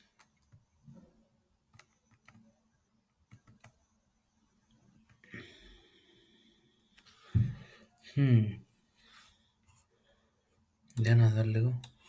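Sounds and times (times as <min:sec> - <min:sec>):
computer clicks: 0:01.7 - 0:02.5, 0:03.2 - 0:03.9, 0:10.9 - 0:12.0.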